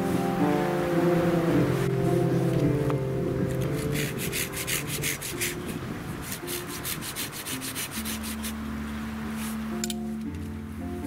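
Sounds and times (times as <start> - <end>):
hand saw cutting wood: 3.6 - 8.6.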